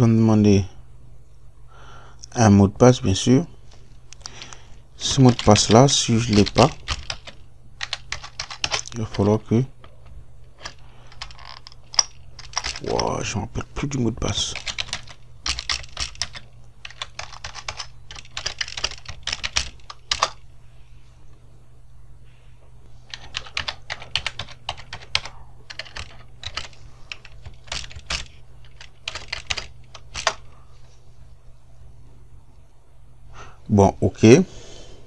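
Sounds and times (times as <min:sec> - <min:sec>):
low steady hum: 0:00.0 - 0:35.0
computer keyboard typing: 0:05.0 - 0:10.0, 0:10.6 - 0:13.1, 0:14.3 - 0:20.4, 0:23.1 - 0:30.5.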